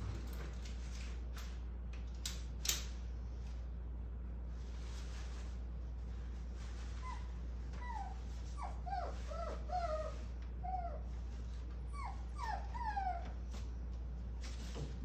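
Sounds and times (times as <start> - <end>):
puppy whining: 7.0 - 13.6.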